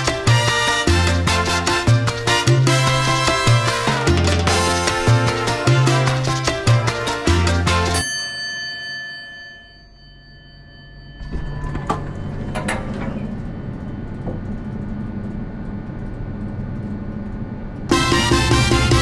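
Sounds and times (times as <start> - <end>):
chime tones: 7.8 - 12.6
steady low hum: 10.4 - 17.9
sliding doors opening: 11.2 - 14.8.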